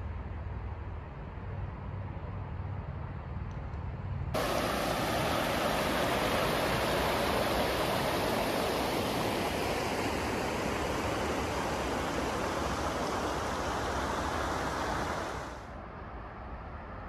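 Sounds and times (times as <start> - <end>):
stream rushing over rocks: 4.4 - 15.6.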